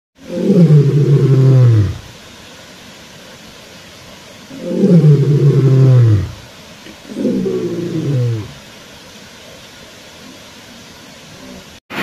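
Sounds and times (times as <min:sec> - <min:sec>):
deep roar-like calls: 0:00.2 - 0:02.1, 0:04.5 - 0:06.4, 0:07.1 - 0:08.6
faint rushing hiss: 0:00.2 - 0:12.0.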